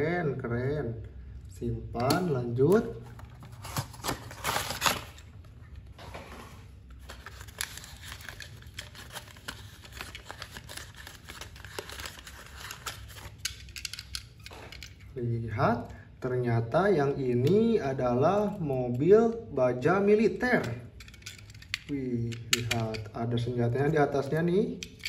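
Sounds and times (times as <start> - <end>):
cardboard and plastic rustling: 2.6 - 13.5.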